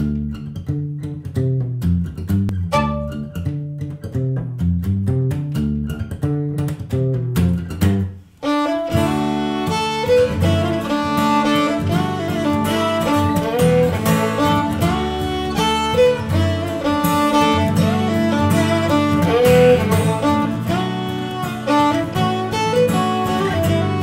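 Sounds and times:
acoustic guitar picking: 0.0 - 24.0
violin bowed melody: 2.5 - 3.6, 8.4 - 24.0.

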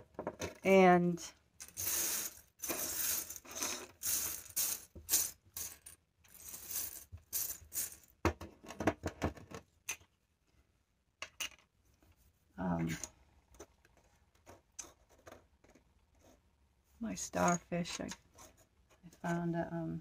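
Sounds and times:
shells clinking and rattling: 1.6 - 8.1.

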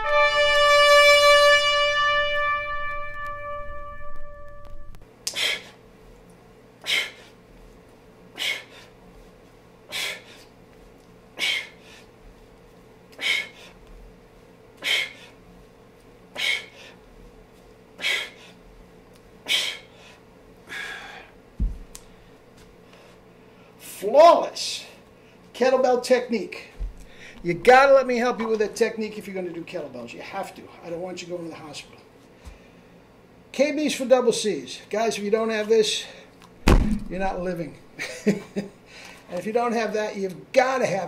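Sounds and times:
man exhaling sharply: 5.3 - 5.7, 8.4 - 8.9, 11.4 - 12.0, 13.2 - 13.7, 16.4 - 17.0, 19.5 - 21.3
short low thud: 36.6 - 37.4.

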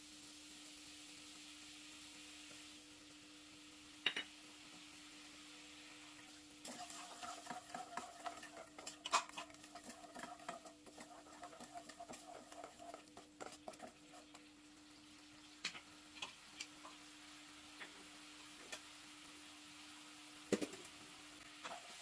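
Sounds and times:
wooden spatula scraping pan: 6.8 - 14.4.

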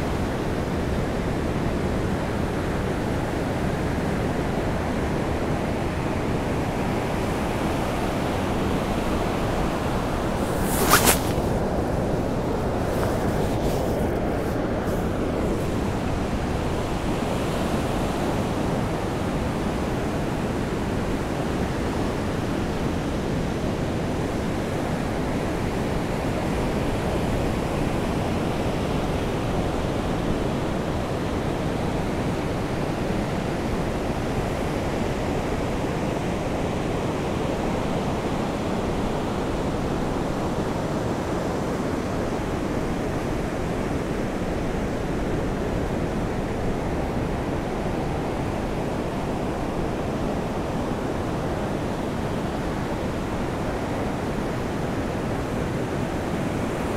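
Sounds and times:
sea surf rushing: 8.1 - 16.6.

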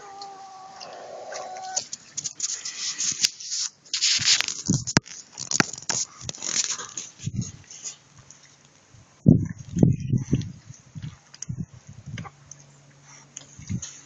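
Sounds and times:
chicken call: 0.0 - 1.8
rustling and scraping: 0.8 - 8.6, 13.0 - 14.0.

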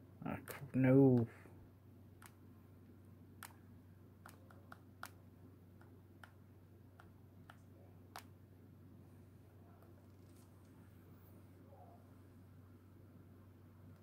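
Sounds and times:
low steady hum: 0.0 - 14.0
stylus tapping touchscreen: 5.8 - 8.3.

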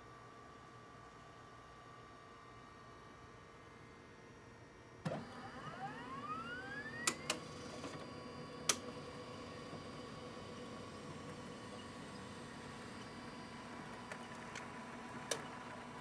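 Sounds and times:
printer motor whine rising: 5.0 - 16.0
printer running hum: 5.0 - 16.0.

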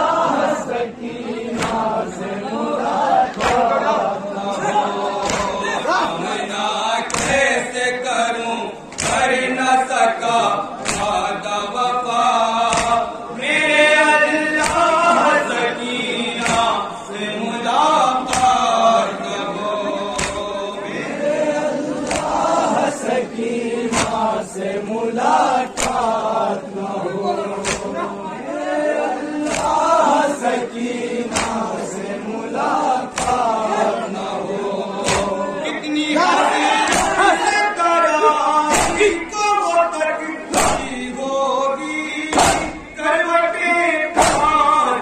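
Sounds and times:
crowd of men chanting: 0.0 - 45.0
man chanting through a microphone: 3.0 - 45.0
sharp rhythmic strikes: 4.6 - 7.8, 8.8 - 10.0, 10.7 - 15.6, 16.2 - 20.8, 21.9 - 23.0, 23.8 - 24.6, 27.5 - 28.1, 29.4 - 37.8, 38.5 - 39.7, 40.4 - 41.2, 41.8 - 45.0.

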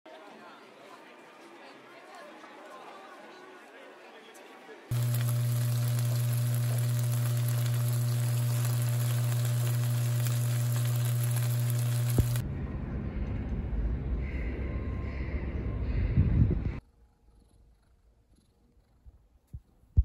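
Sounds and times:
fried rice sizzling in pan: 4.9 - 12.4
low hum: 4.9 - 16.8.

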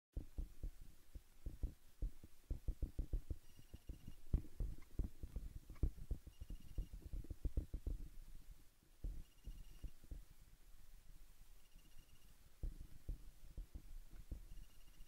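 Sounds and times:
microphone handling thumps: 1.4 - 8.2, 9.0 - 9.2, 12.6 - 14.6
rapid high-pitched beeping: 3.3 - 4.3, 5.7 - 7.1, 9.1 - 10.0, 14.4 - 15.0.

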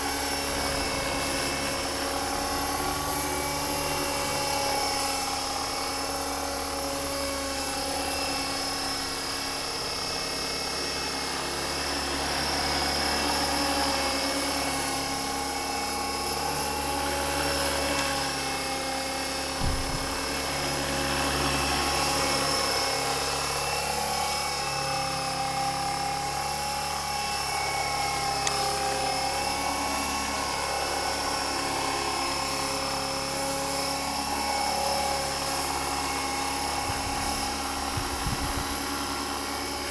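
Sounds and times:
electric motor whine: 0.0 - 39.9
rotor blades whirring: 0.0 - 39.9
low thump: 19.6 - 20.1.

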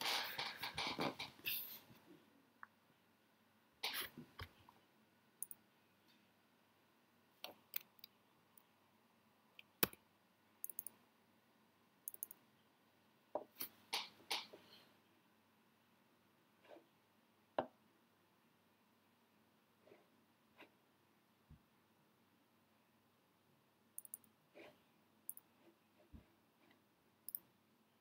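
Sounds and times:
computer mouse and keyboard clicks: 10.6 - 11.0, 12.1 - 12.4, 24.0 - 24.2.

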